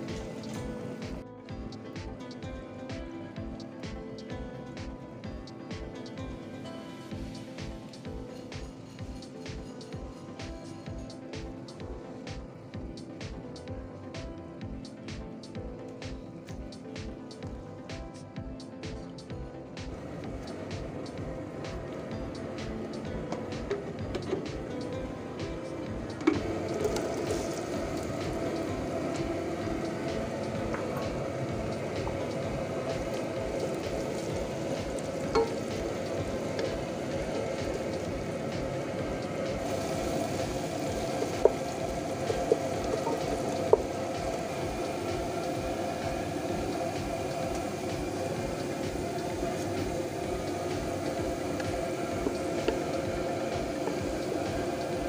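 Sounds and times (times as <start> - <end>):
onions sizzling in oil: 19.9 - 55.0.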